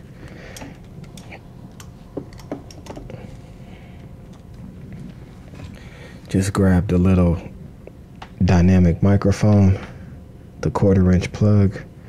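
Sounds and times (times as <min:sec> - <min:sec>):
faint low hum: 0:00.0 - 0:12.0
handling clicks and knocks: 0:00.6 - 0:03.1.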